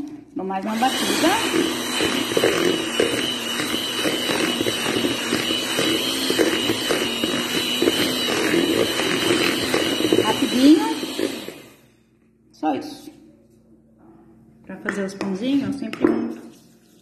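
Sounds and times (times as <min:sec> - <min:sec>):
electric hand mixer whining: 0:00.6 - 0:11.9.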